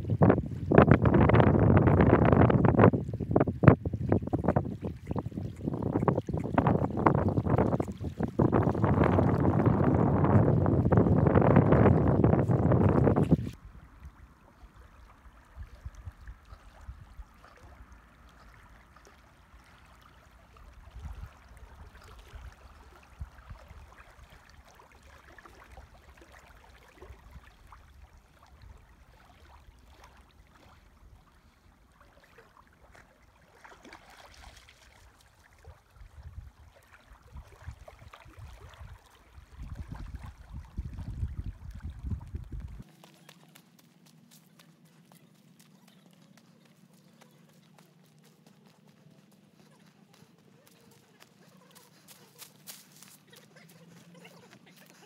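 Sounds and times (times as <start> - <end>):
wind buffeting microphone: 0.0 - 14.2, 35.6 - 42.9
lake water lapping: 0.0 - 55.0.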